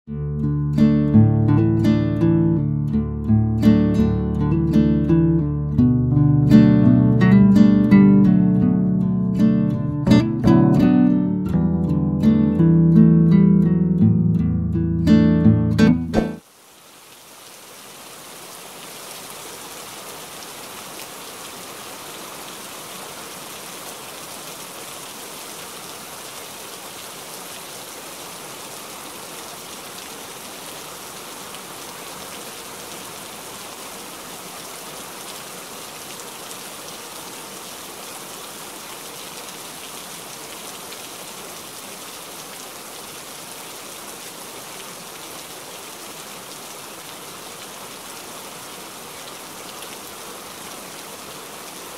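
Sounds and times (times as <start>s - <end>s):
water streaming off roof: 16.2s - 51.9s
heavy rain on a sheet roof: 16.4s - 51.9s.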